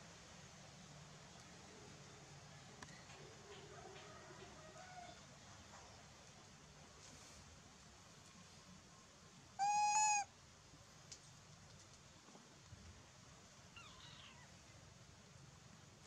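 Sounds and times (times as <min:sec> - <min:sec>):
macaque coo call: 0:09.6 - 0:10.3.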